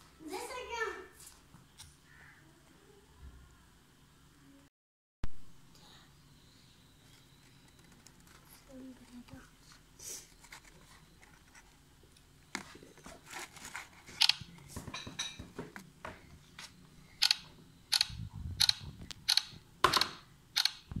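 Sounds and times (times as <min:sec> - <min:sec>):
soft paper rustling: 0:07.0 - 0:14.8.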